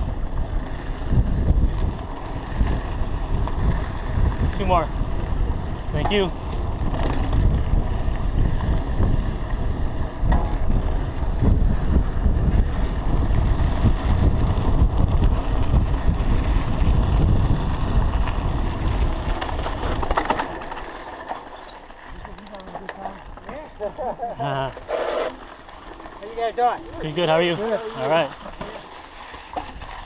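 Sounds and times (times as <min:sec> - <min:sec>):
wind buffeting microphone: 0:00.0 - 0:20.9
tyres crunching over gravel: 0:13.1 - 0:30.0.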